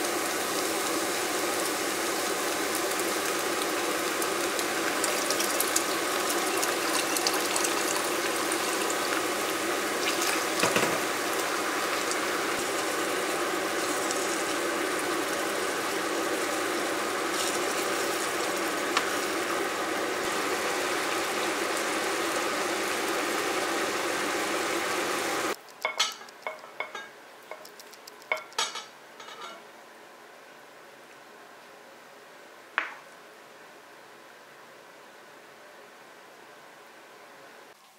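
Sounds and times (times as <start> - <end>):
meat sauce sizzling in a pan: 0.0 - 25.6
water pouring: 4.9 - 10.8
tongs and ladle clinking: 25.8 - 27.7, 28.3 - 29.6.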